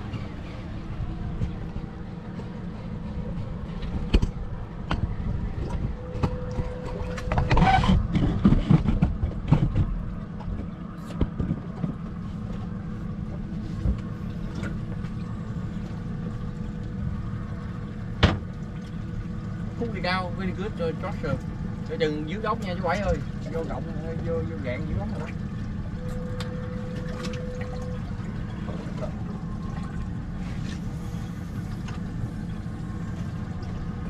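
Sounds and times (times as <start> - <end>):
outboard motor running: 0.0 - 34.0
knocks and clatter on deck: 18.2 - 18.5.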